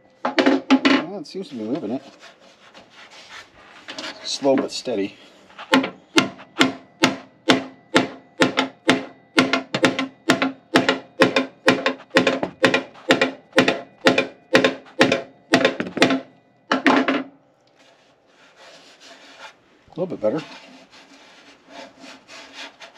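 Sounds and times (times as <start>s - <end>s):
hammer blows on steel: 5.7s - 16.3s.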